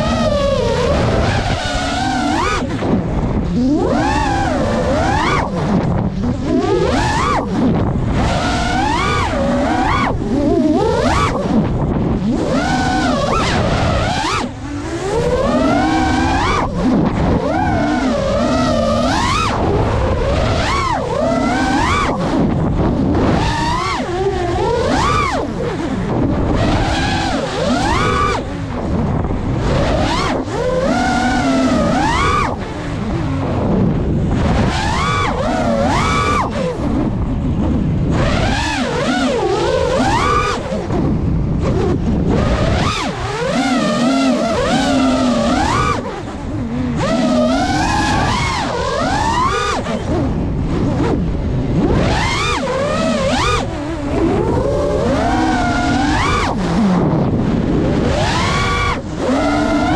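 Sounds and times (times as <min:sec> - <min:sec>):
quadcopter motors whining: 0:00.0 - 0:59.9
wind rushing over microphone: 0:00.0 - 0:59.9.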